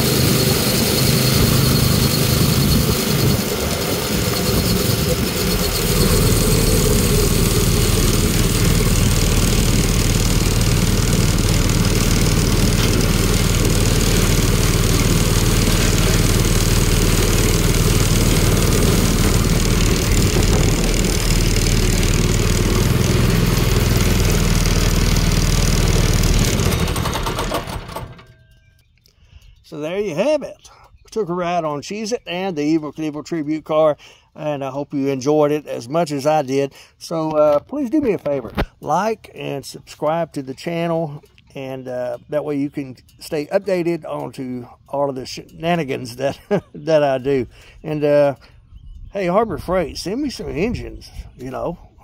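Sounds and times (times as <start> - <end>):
go-kart engine running: 0.0 - 28.4.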